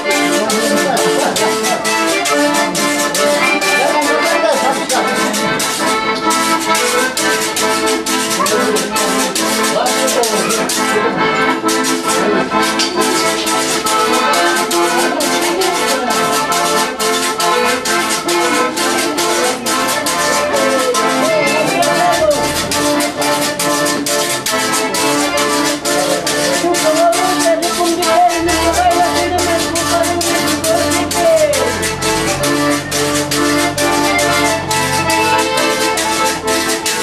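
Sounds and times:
accordion dance tune: 0.0 - 37.0
sharp percussive clicks: 11.6 - 14.6.

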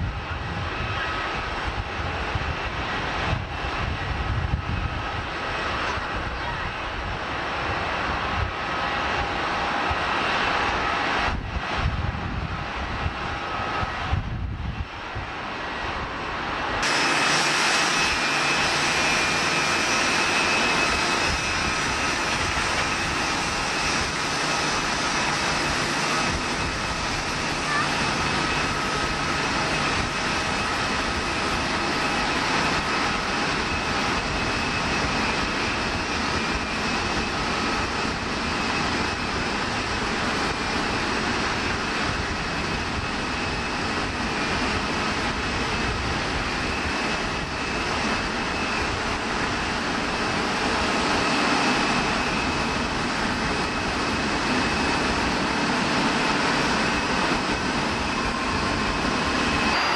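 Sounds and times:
jet engines rushing: 0.0 - 59.9
thin high whine: 56.1 - 59.9.

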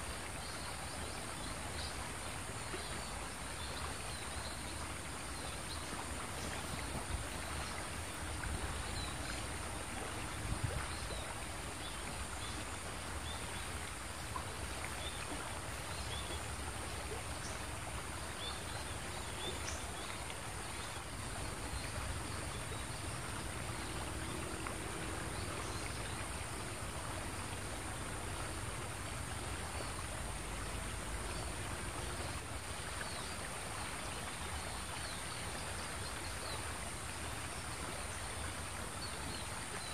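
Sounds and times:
river water flowing: 0.0 - 39.9.

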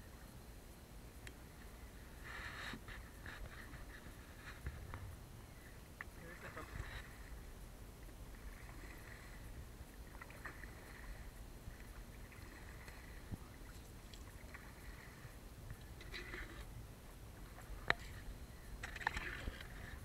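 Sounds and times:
paddle swishing through water: 6.2 - 20.0.

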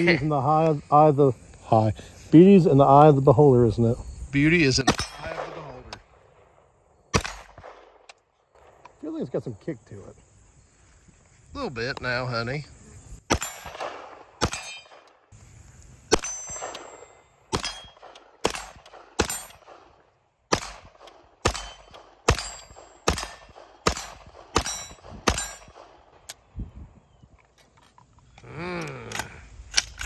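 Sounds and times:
pistol shots: 4.8 - 8.9, 13.3 - 15.3, 16.1 - 26.3
short metallic ring: 16.1 - 18.0
faint gun clicks: 27.3 - 30.0.

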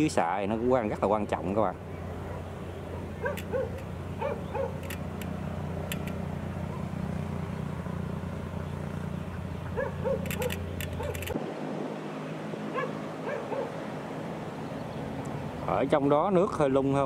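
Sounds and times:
diesel engine running: 1.0 - 16.5
sharp clicks: 3.3 - 3.9, 4.7 - 6.2, 10.2 - 11.4.

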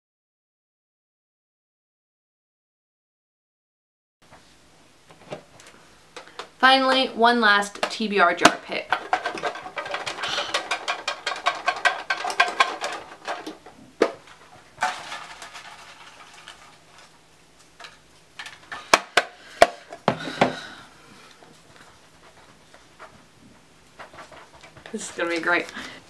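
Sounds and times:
paper slips rattling in a box: 8.7 - 13.6, 14.8 - 17.1.

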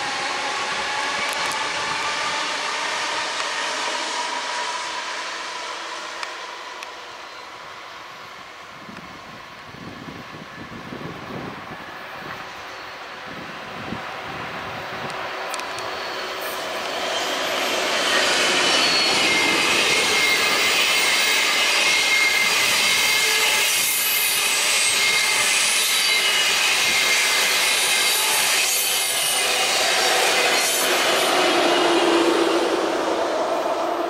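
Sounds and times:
high-speed train running past: 0.0 - 34.0
wheels squealing against rails: 0.0 - 34.0.

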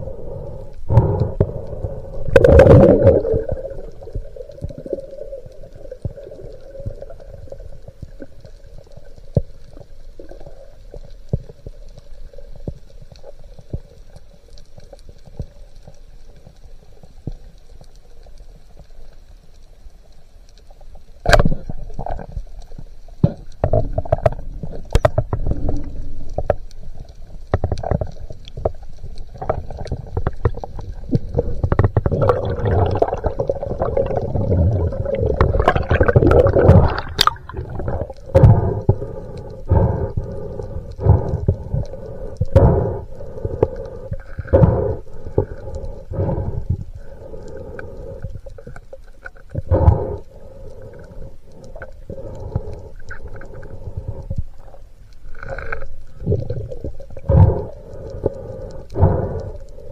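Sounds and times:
muffled underwater rumble: 0.0 - 59.9
sharp underwater clicks: 20.6 - 59.9.

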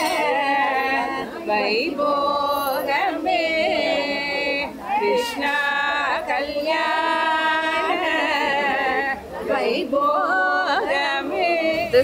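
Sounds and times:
woman singing held notes: 0.0 - 12.0.

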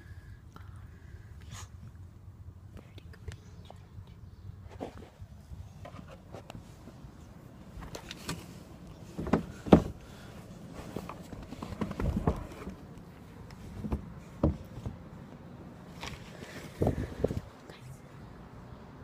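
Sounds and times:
phone handling knocks and rustling: 9.2 - 10.0, 11.0 - 12.8.

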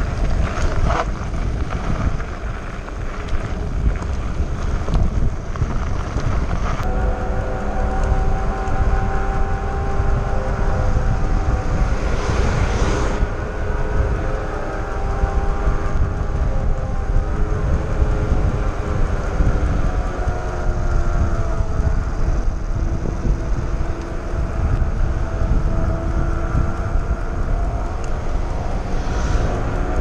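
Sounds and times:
wind rushing over microphone: 0.0 - 30.0
steady wavering whine: 6.8 - 30.0.

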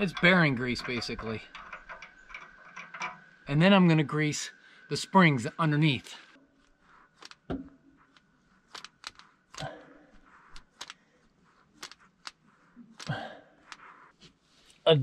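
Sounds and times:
grease gun clicks and clinks: 0.0 - 3.5, 8.1 - 9.7.

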